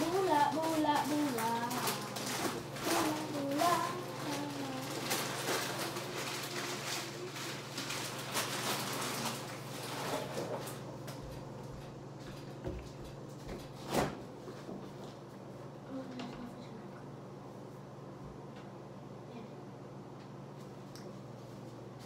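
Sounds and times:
household rustling and clattering: 0.0s - 16.7s.

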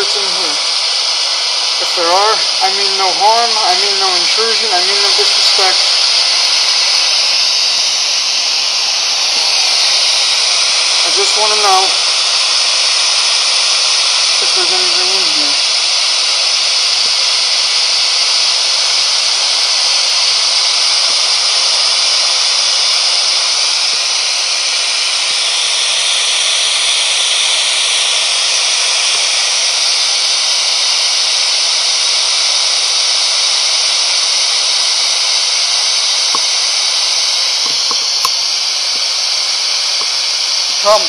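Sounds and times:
radio static: 0.0s - 0.8s, 1.6s - 8.3s, 10.4s - 15.7s, 40.8s - 41.0s.

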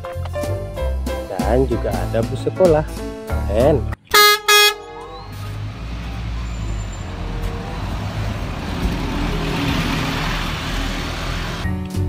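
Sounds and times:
bus engine drone: 4.0s - 11.8s.

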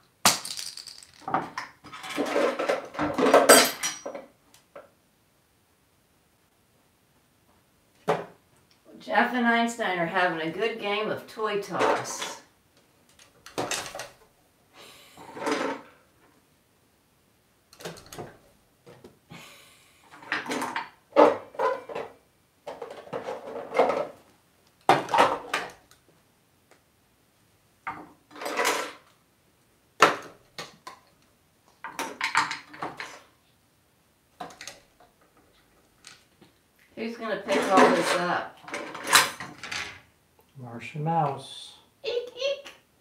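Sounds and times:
plastic toys clattering on wood: 0.3s - 4.3s, 13.1s - 14.2s, 15.2s - 15.9s, 20.1s - 24.2s, 27.9s - 29.1s, 37.4s - 40.0s.

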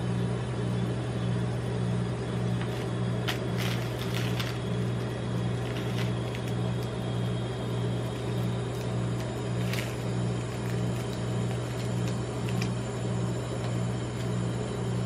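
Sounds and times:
ice cream machine humming: 0.0s - 15.0s
wrapper crinkling and taps: 2.6s - 7.0s, 8.0s - 12.8s.

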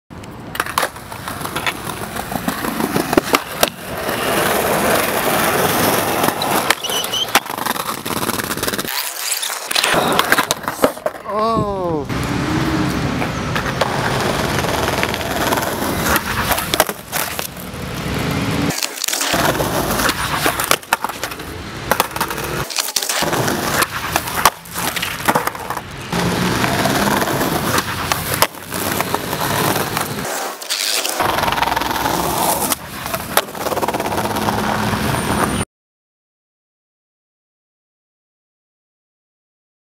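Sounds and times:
skateboard wheels rolling on concrete: 0.1s - 35.6s
skateboard cracks and slaps: 0.5s - 11.4s, 13.2s - 18.1s, 18.7s - 34.8s
person shouting: 11.2s - 12.9s.

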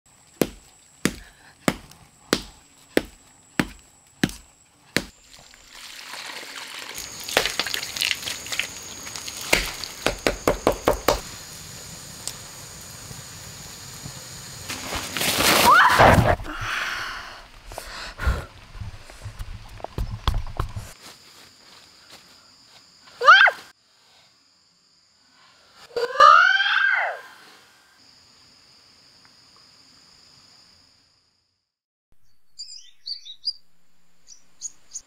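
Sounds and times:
chopping strikes: 0.4s - 5.2s, 9.4s - 11.2s
wet mud slapped onto stones: 0.4s - 5.2s, 7.0s - 11.2s.

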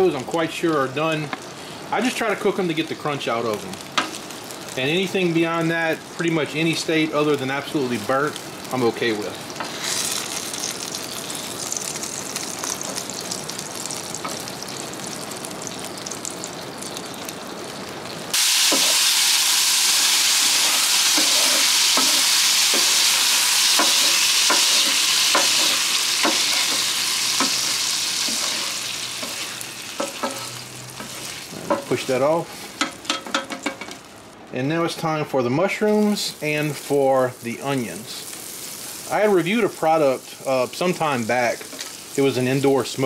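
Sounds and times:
grease sizzling on a griddle: 0.0s - 43.0s
spatula scraping and tapping griddle: 21.1s - 23.0s, 23.7s - 32.0s, 32.7s - 34.0s.

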